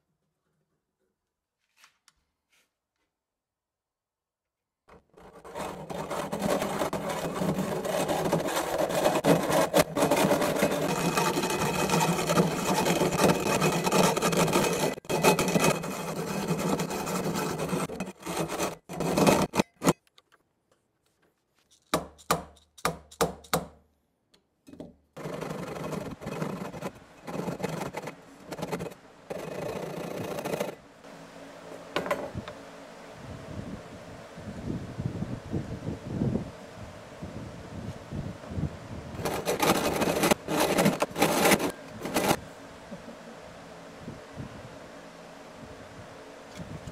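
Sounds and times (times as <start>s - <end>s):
hacksaw cutting steel: 5.2s - 20.0s, 39.2s - 42.4s.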